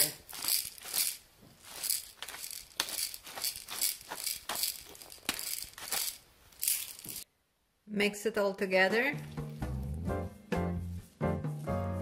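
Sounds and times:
pepper mill grinding peppercorns: 0.0 - 7.2.

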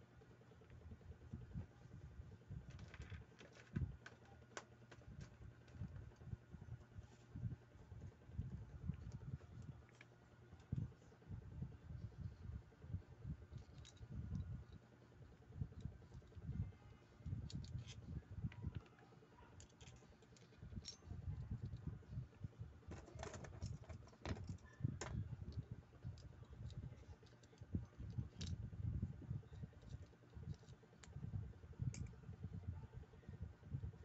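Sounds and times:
small reel parts clicking: 2.6 - 6.3, 13.3 - 21.8, 22.9 - 28.7, 29.4 - 32.2.

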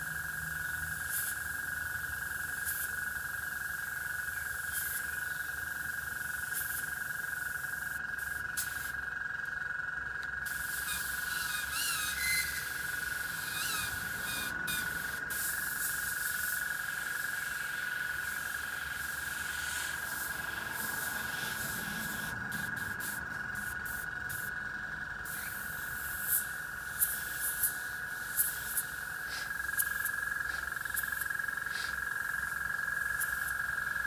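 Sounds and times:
airbrush hissing: 7.5 - 9.0, 10.4 - 24.6, 25.2 - 32.2
faint chirps: 10.6 - 15.8
high-pitched whine: 10.6 - 34.0.

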